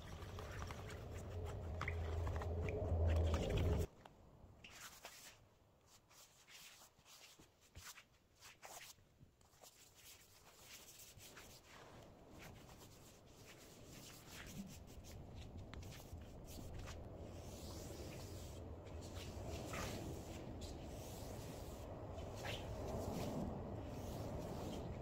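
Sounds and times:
cloth pad rubbing on wood: 15.9 - 25.0.

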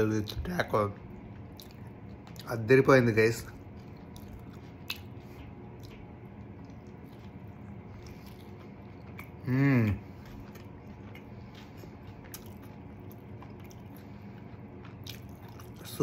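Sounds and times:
man chewing food: 0.1 - 16.0
man humming mmm: 9.4 - 10.1.

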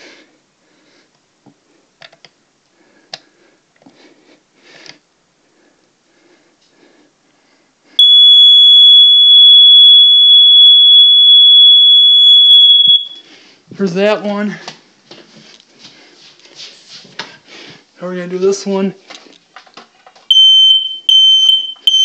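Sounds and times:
high-pitched smoke alarm tone: 8.0 - 13.3, 20.3 - 22.0.

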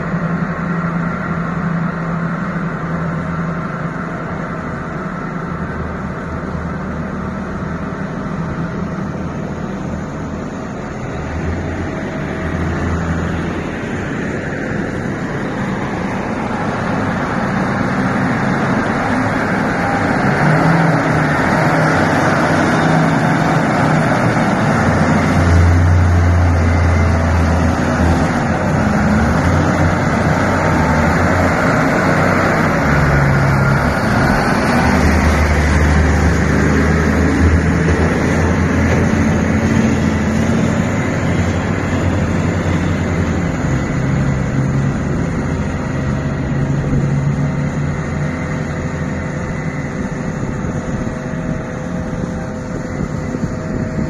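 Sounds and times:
heavy vehicle engine roar: 0.0 - 54.0
deep rumble: 5.8 - 54.0.

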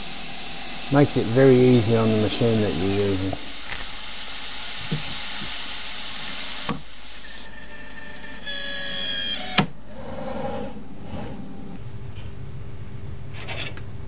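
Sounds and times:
compressed air spray hissing: 0.0 - 7.5
machine whine: 6.6 - 11.8.

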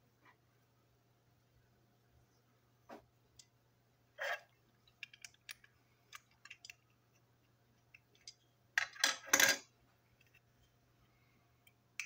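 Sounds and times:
toy parts clicking and tapping: 4.8 - 9.6.

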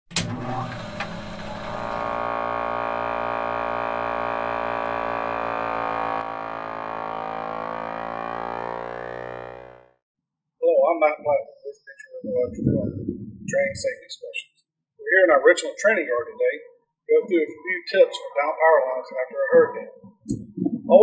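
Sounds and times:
synthesized drone chord pulsing: 0.3 - 10.0.

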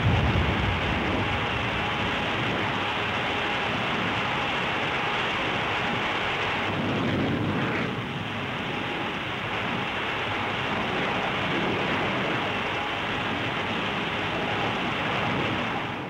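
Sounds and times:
jet aircraft rushing noise: 0.0 - 8.9.

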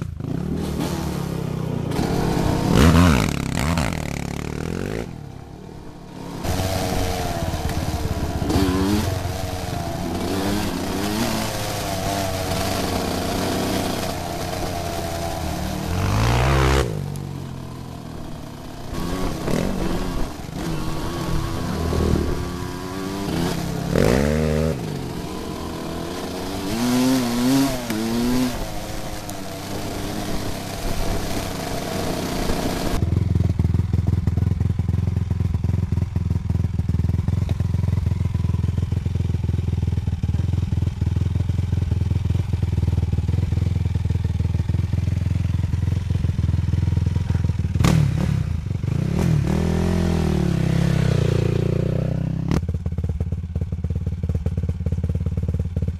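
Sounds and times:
quad engine revving: 0.0 - 34.2, 38.6 - 52.7
quad engine idling: 27.8 - 55.9.

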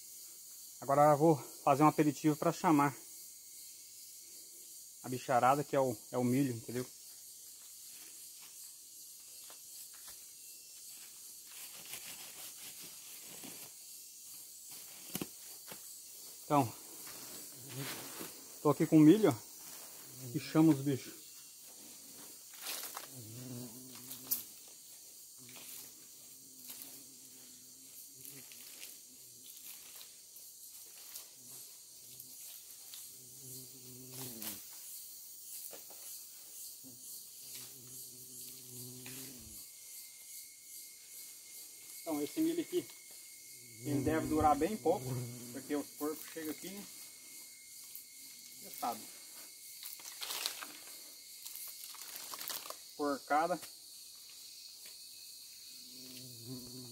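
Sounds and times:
insects hissing: 0.0 - 56.9
footsteps in leaf litter: 49.8 - 50.8, 51.7 - 52.8.

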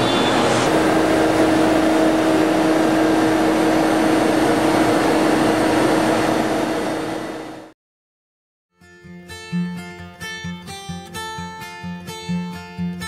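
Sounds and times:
router machine running loudly: 0.0 - 7.7
steady mid-pitched whine: 0.0 - 7.7.

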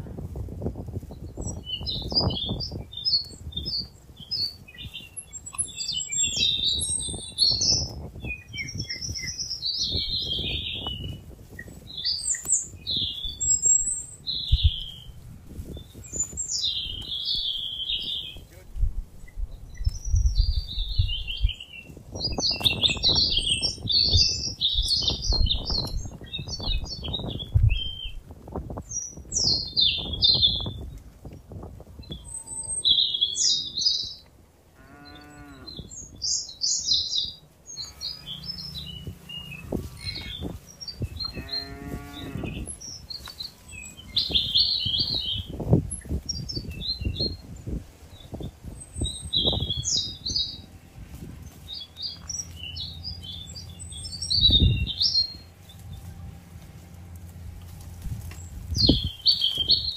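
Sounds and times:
small birds chirping: 0.7 - 59.9
cow mooing: 34.8 - 35.9, 37.8 - 40.5, 41.2 - 42.7
cattle chewing grass: 50.1 - 59.9.

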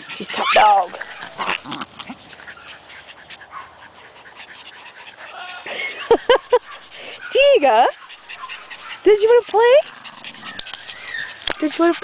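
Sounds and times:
dogs panting: 0.0 - 12.0
dog yips: 6.6 - 12.0.

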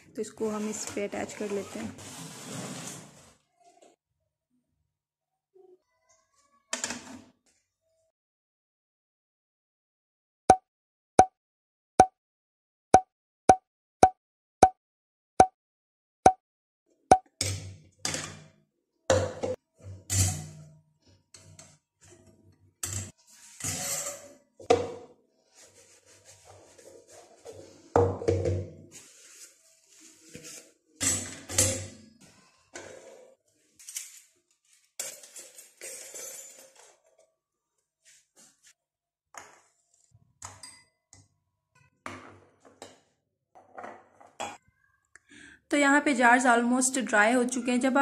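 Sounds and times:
scraping rustle: 0.4 - 3.4
cup set down on stone countertop: 28.0 - 28.8
metal cutlery stand clinking: 35.0 - 37.0.

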